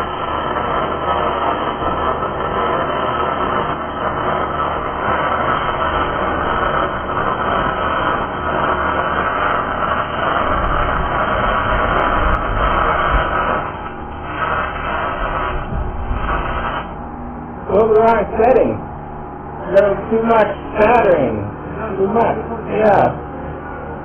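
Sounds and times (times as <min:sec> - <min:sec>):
welding arc crackling: 0:00.0 - 0:23.2
low rumble: 0:09.7 - 0:24.0.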